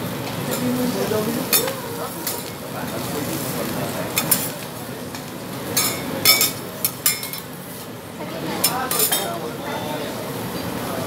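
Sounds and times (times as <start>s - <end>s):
dishes and utensils clinking: 5.7s - 7.5s, 8.6s - 9.4s.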